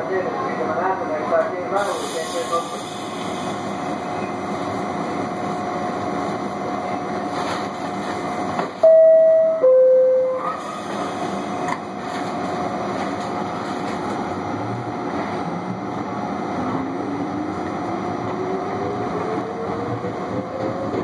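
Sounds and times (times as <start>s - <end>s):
subway car hum: 0.0s - 21.0s
two-note electronic door chime: 8.8s - 10.4s.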